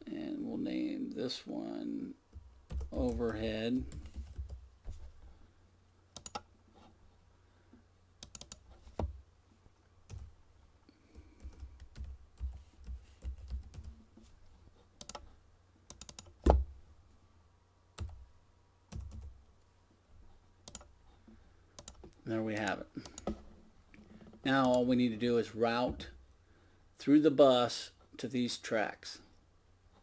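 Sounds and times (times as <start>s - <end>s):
typing on computer keyboard: 2.7s - 4.6s, 6.2s - 6.5s, 8.2s - 8.6s, 11.4s - 13.9s, 15.0s - 15.2s, 15.9s - 16.4s, 18.9s - 19.3s, 20.7s - 20.9s.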